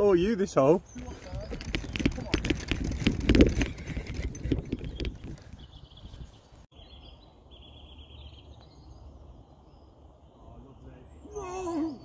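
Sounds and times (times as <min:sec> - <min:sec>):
knocks and rustle on microphone: 0:01.2 - 0:06.2.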